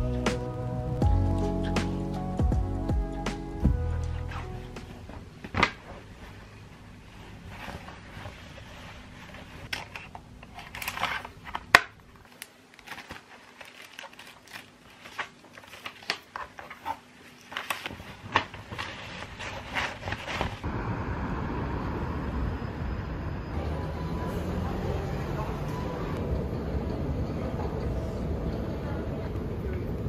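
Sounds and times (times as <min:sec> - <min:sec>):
papers and tote bag rustling: 0:03.7 - 0:20.7
plastic bag crinkling: 0:05.2 - 0:20.6.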